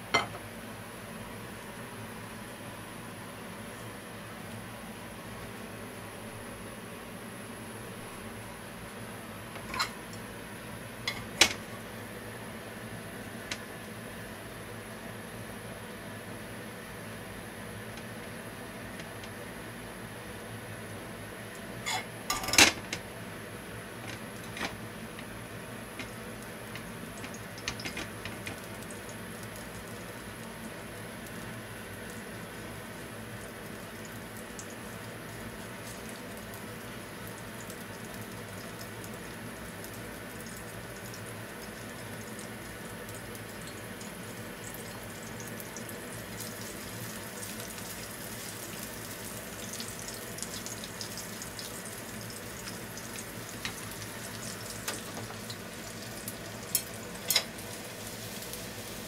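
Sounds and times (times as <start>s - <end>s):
garlic sizzling in oil: 23.7s - 59.0s.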